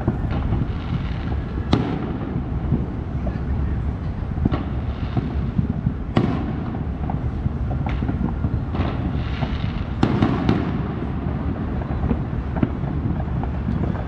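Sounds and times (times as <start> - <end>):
low rumble: 0.0 - 10.0
fireworks bangs and cracks: 0.0 - 14.0.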